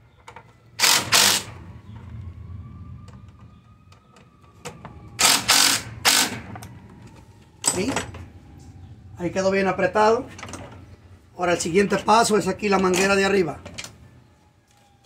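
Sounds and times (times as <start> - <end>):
cordless driver bursts: 0.8 - 1.6, 5.2 - 6.5.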